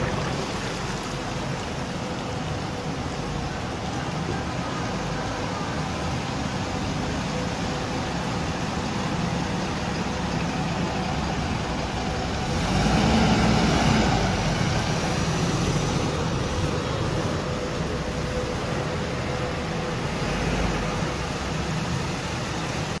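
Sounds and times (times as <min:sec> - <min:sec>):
bus engine: 0:00.0 - 0:23.0
water rushing: 0:00.0 - 0:23.0.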